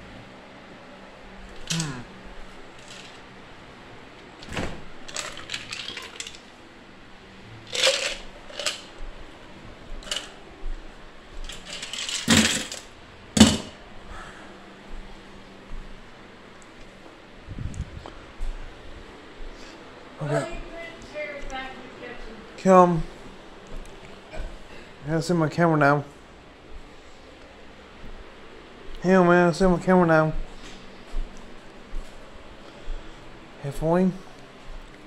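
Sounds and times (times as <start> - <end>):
faint steady hum: 0.0 - 35.0
household objects clattering: 5.1 - 6.5, 7.7 - 8.9, 11.5 - 13.8.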